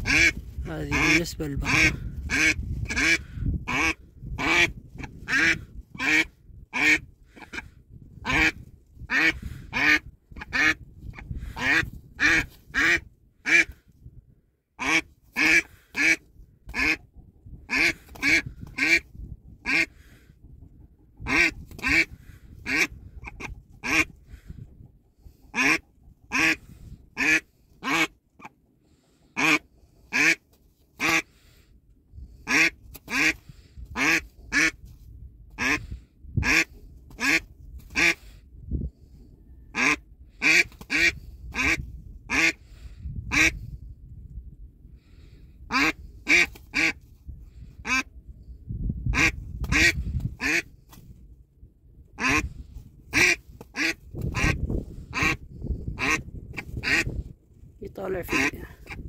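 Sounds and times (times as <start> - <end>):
duck quacking: 0.0 - 13.8, 14.8 - 17.0, 17.7 - 20.2, 21.2 - 24.2, 25.2 - 28.5, 29.4 - 30.4, 31.0 - 31.3, 32.4 - 33.4, 34.0 - 34.8, 35.6 - 38.2, 39.7 - 42.6, 43.3 - 43.6, 45.7 - 47.0, 47.8 - 48.1, 49.2 - 50.7, 52.2 - 52.5, 53.1 - 57.2, 58.2 - 59.0.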